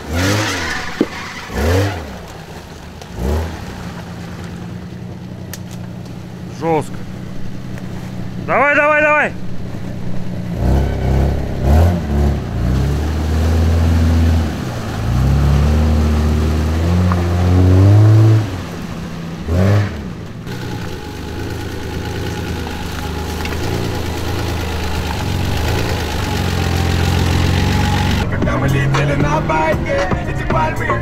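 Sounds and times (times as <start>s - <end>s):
car engine revving: 0.0s - 31.0s.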